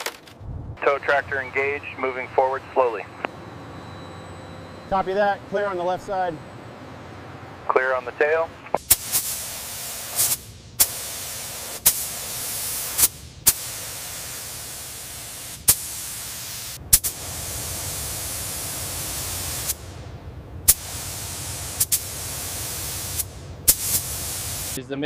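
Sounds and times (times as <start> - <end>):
spray gun hissing: 8.8 - 20.0, 20.7 - 24.8.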